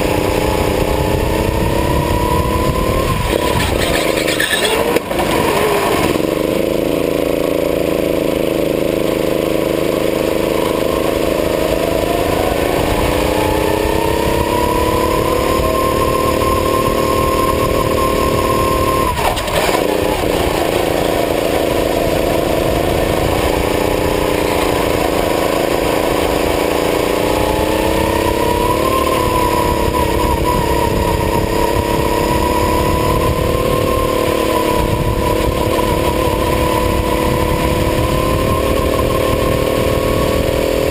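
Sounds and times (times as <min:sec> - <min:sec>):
racing kart engine running hard: 0:00.0 - 0:40.9.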